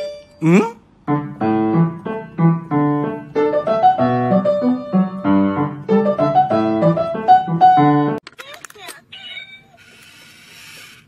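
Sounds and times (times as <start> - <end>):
bouncy keyboard tune: 0.0 - 8.2.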